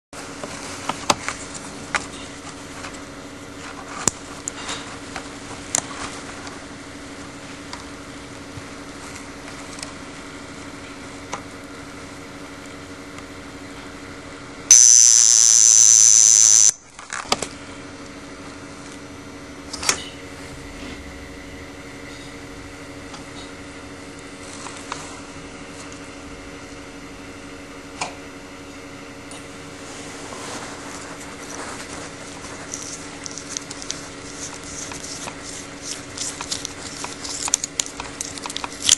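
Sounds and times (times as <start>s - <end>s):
alarm watch buzzing: 14.7s - 16.8s
shrill alarm sound: 14.7s - 16.8s.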